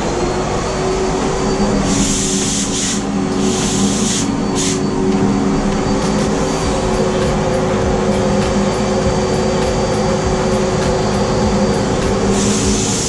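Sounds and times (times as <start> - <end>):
steady machine hum: 0.0 - 13.0
spray gun hissing: 1.8 - 5.0, 6.1 - 13.0.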